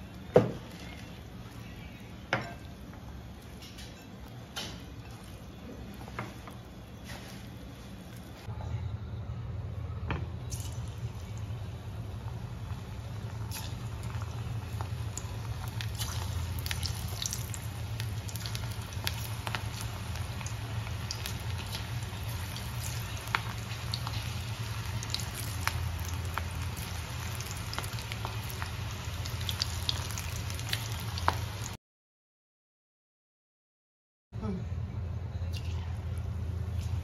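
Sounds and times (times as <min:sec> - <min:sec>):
food deep-frying in oil: 0:00.0 - 0:08.3, 0:10.4 - 0:31.8
low hum: 0:08.5 - 0:28.8.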